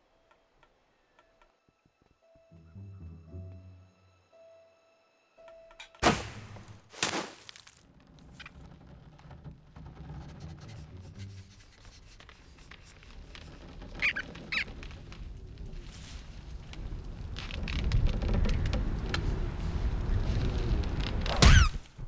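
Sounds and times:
rustling forest ambience: 0.0s - 22.0s
high rodent squeaks: 13.9s - 14.7s.

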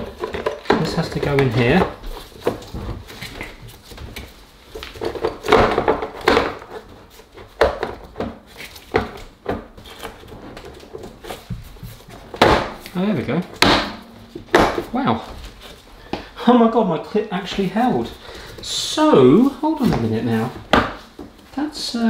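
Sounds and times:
plastic knocks and clicks: 0.0s - 15.0s.

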